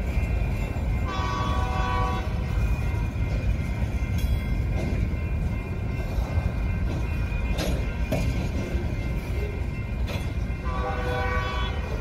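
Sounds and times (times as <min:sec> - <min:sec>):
freight train cars rumbling: 0:00.0 - 0:12.0
locomotive horn blast: 0:01.1 - 0:02.4, 0:10.6 - 0:12.0
train wheel clicks: 0:02.5 - 0:10.7.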